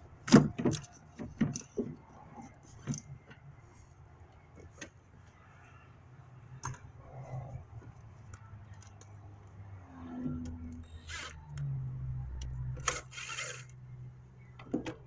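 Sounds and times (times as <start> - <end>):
plastic parts clicking and tapping: 0.3 - 2.0.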